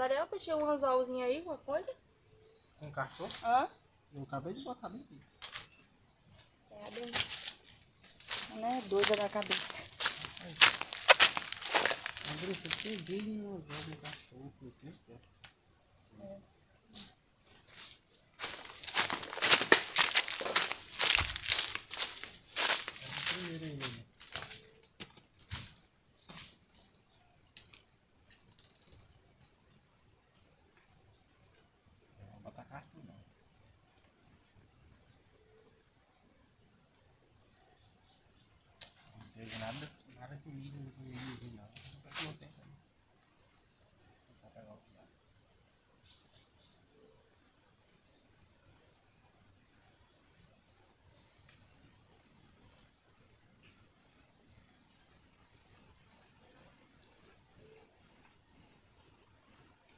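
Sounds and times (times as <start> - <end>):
high-pitched insect drone: 0.0 - 36.0.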